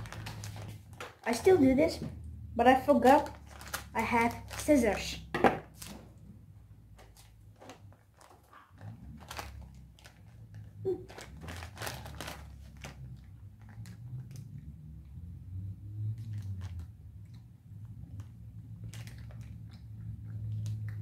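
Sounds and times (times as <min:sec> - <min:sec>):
plastic wrapper crinkling and tearing: 0:00.0 - 0:01.6, 0:03.0 - 0:06.1, 0:06.9 - 0:14.5, 0:18.8 - 0:19.8.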